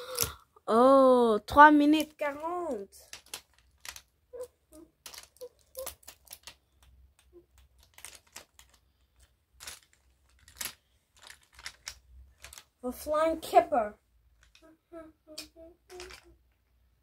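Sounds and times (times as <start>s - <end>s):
wooden toy train cars clacking: 1.9s - 12.7s, 15.4s - 16.5s.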